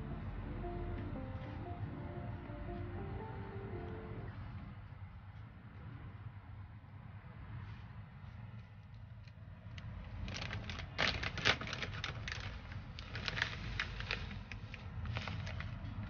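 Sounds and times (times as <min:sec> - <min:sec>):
plastic packet crinkling: 0:10.1 - 0:16.0.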